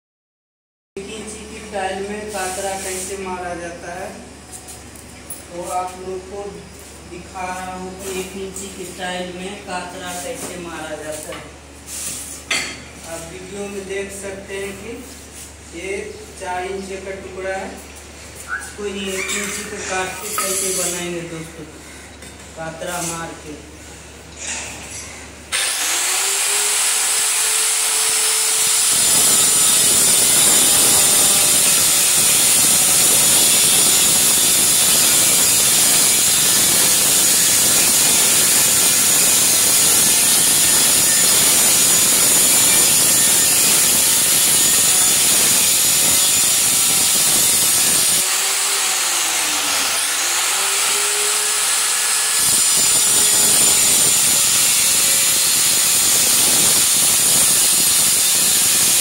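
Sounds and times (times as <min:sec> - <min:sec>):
electric tile cutter grinding tile: 0:25.5 - 0:59.0.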